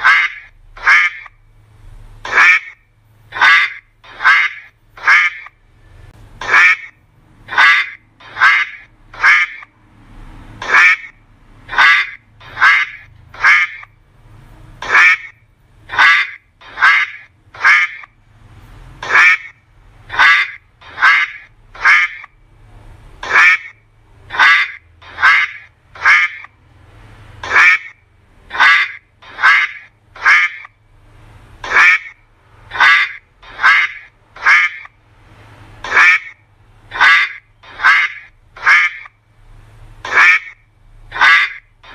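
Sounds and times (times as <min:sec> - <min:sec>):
duck quacking loudly: 0:00.0 - 0:01.4, 0:02.2 - 0:05.6, 0:06.4 - 0:09.7, 0:10.6 - 0:13.9, 0:14.8 - 0:18.2, 0:19.0 - 0:22.3, 0:23.2 - 0:26.6, 0:27.4 - 0:30.8, 0:31.6 - 0:35.0, 0:35.8 - 0:39.2, 0:40.0 - 0:41.9.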